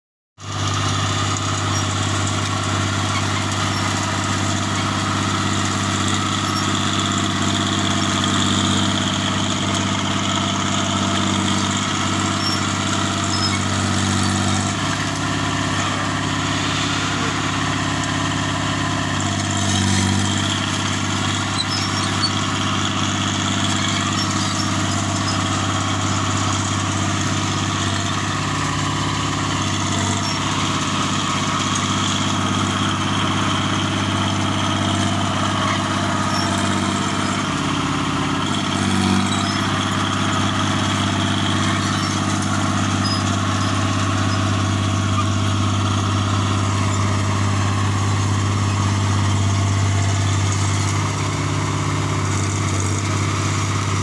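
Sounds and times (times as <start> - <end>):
bulldozer diesel engine: 0.4 - 54.0
blade pushing brush: 19.9 - 32.3, 34.0 - 53.3.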